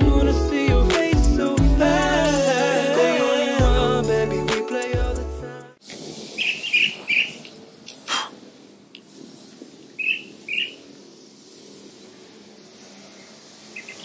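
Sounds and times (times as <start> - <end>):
background music: 0.0 - 5.8
small birds chirping: 6.3 - 14.0.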